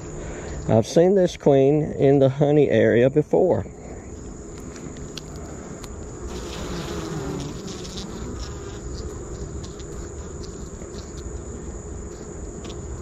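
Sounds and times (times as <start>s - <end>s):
honey bees buzzing: 3.7s - 13.0s.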